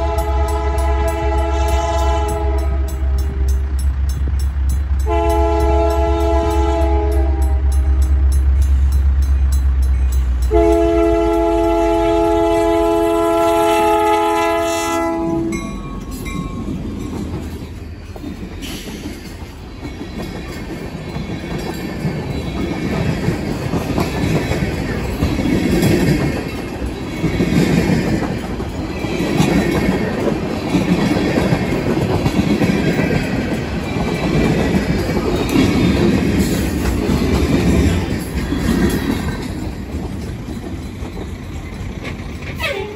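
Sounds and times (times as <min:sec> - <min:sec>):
train horn blast: 0:00.0 - 0:03.6, 0:05.0 - 0:08.1, 0:10.5 - 0:15.8, 0:42.6 - 0:42.9
diesel locomotive engine rumble: 0:00.0 - 0:42.9
train cars clickety-clack: 0:00.0 - 0:42.9.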